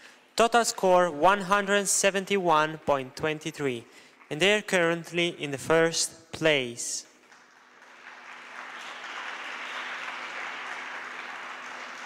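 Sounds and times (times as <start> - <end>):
applause: 7.1 - 12.0.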